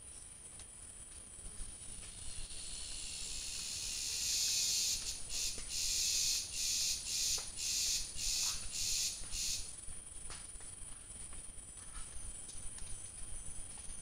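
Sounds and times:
high-pitched insect buzz: 0:01.8 - 0:09.7.

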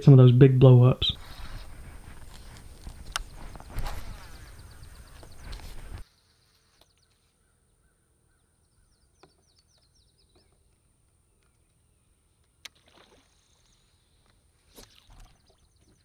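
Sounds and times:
faint high bird chirps: 0:03.2 - 0:10.7.

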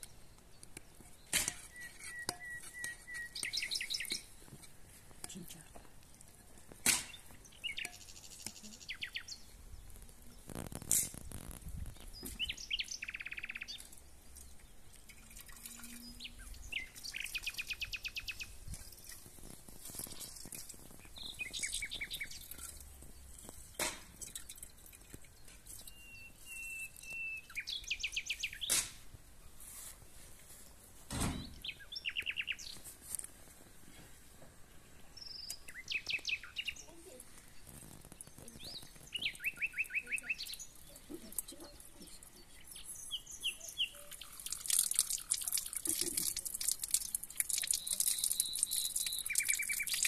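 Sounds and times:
songbirds chirping and trilling: 0:00.0 - 0:50.0
dull thump: 0:31.1 - 0:31.6.

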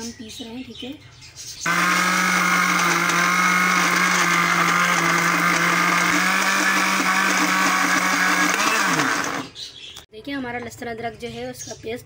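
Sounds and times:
electric blender motor whining: 0:01.7 - 0:09.5.

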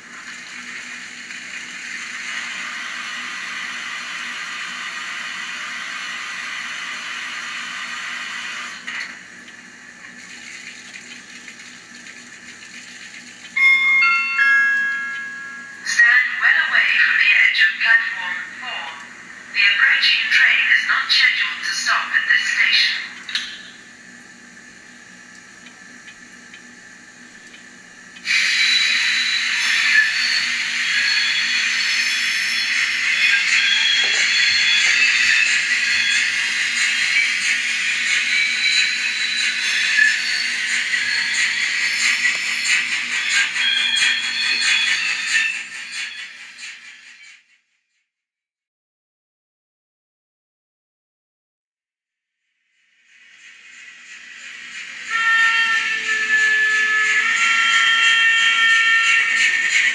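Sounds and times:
model steam locomotive hiss: 0:00.0 - 0:09.2, 0:14.9 - 0:23.2, 0:28.2 - 0:47.6, 0:52.8 - 0:59.9.

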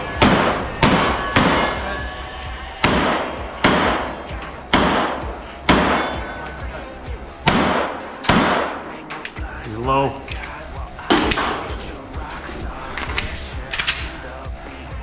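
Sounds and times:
pistol shots echoing: 0:02.8 - 0:06.4, 0:07.4 - 0:09.0.

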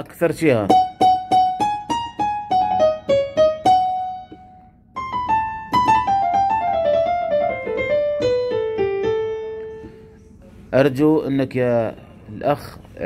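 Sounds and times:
keyboard piano notes: 0:00.6 - 0:10.2.

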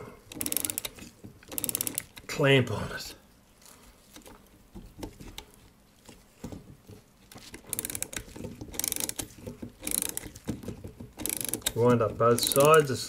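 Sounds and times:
ratchet clicking: 0:00.3 - 0:02.2, 0:07.4 - 0:12.9
light handling knocks: 0:04.2 - 0:07.6.

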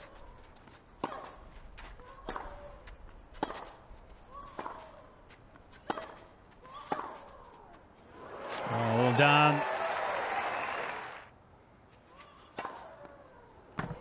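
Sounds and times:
racquets hitting tennis ball: 0:00.6 - 0:07.7.

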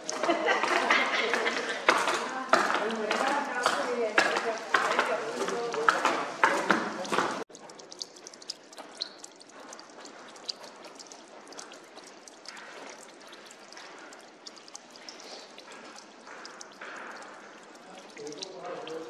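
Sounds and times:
faint water trickle: 0:00.0 - 0:19.0
water dripping from icicles: 0:00.0 - 0:19.0.

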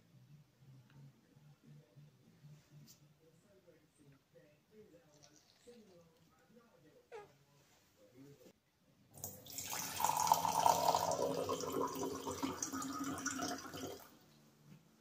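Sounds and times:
drink pouring into a glass: 0:09.2 - 0:14.1.

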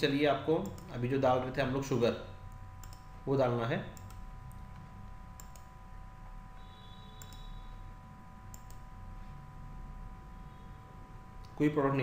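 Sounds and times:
steady hum: 0:00.0 - 0:12.0
computer mouse clicks: 0:00.6 - 0:01.0, 0:02.8 - 0:03.1, 0:04.0 - 0:05.7, 0:07.2 - 0:07.5, 0:08.5 - 0:08.9.

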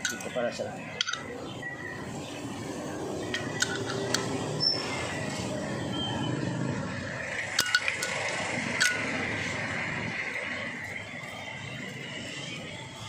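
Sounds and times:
metal tool clicking on engine: 0:00.0 - 0:01.4, 0:03.2 - 0:04.7, 0:07.4 - 0:09.4
steady background noise: 0:00.0 - 0:13.0.

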